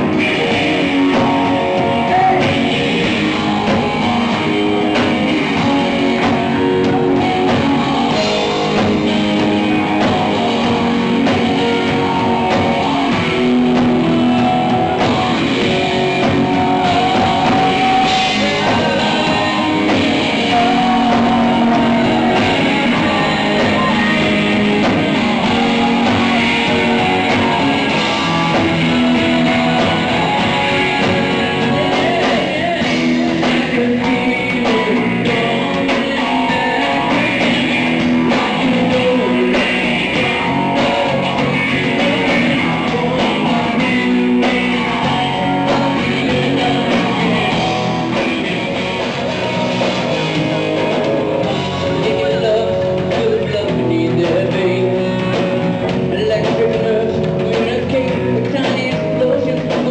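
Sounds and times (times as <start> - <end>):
bass guitar: 0.0 - 59.9
drum kit: 0.0 - 59.9
electric guitars: 0.0 - 59.9.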